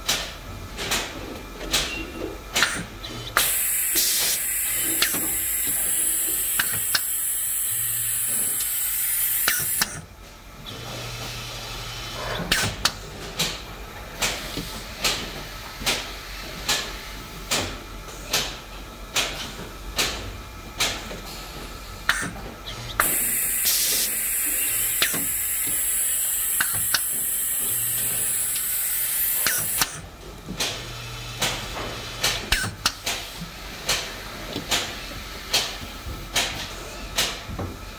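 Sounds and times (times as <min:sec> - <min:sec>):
compressed air hiss: 0:03.4 - 0:10.0, 0:23.0 - 0:29.9.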